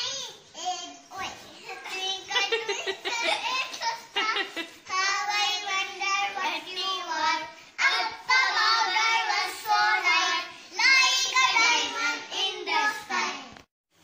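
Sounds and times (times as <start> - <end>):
girl singing: 4.2 - 13.5.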